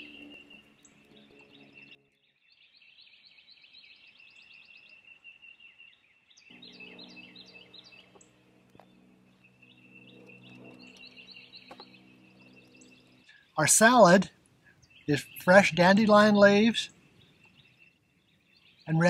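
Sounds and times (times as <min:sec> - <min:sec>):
birds chirping and trilling: 0:00.0 - 0:19.0.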